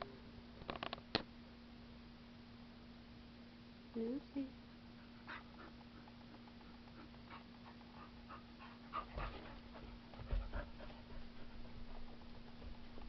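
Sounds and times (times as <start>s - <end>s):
steady low hum: 0.0s - 13.0s
dog panting: 4.9s - 13.0s.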